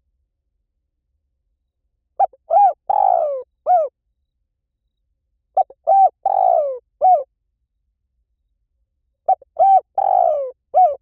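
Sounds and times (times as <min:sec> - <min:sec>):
dove cooing: 0:02.2 - 0:03.9, 0:05.6 - 0:07.3, 0:09.3 - 0:11.0.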